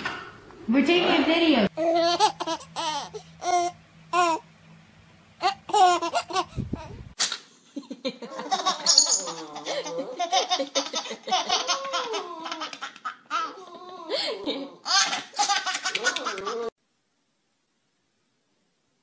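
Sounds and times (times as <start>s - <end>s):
baby laughing: 1.8s - 4.4s, 5.4s - 7.0s, 8.3s - 16.7s.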